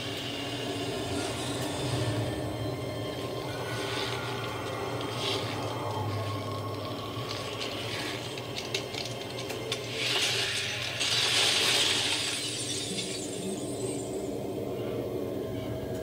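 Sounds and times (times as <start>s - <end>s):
loud hissing crackle: 0.0s - 14.4s.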